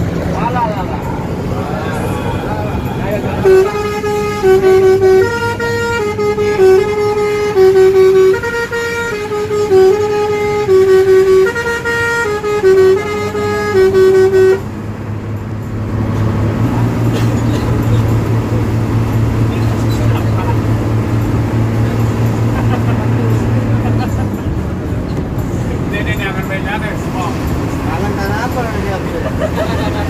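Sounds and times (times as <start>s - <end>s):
low engine drone: 0.0s - 30.0s
multi-tone bus horn tune: 1.2s - 30.0s.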